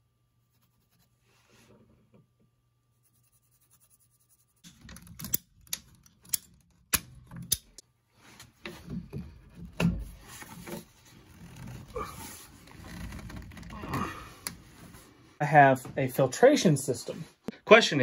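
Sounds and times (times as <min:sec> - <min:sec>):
pencil scratching on pipe: 0:00.4 - 0:01.8, 0:02.9 - 0:04.7.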